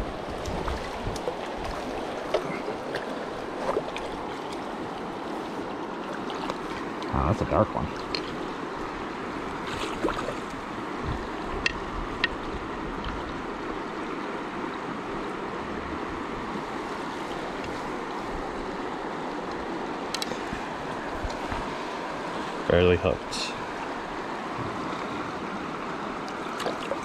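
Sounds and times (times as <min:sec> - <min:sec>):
river water rushing: 0:00.0 - 0:27.0.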